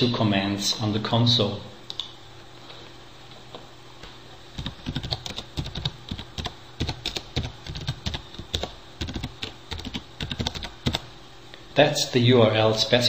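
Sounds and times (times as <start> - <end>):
keyboard typing: 4.6 - 11.1.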